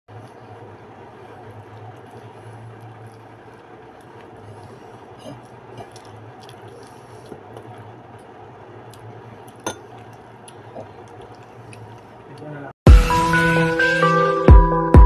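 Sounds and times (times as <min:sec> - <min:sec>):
soft eating clicks: 0:00.1 - 0:12.6
metal spoon clinking ceramic bowl: 0:09.6 - 0:09.9.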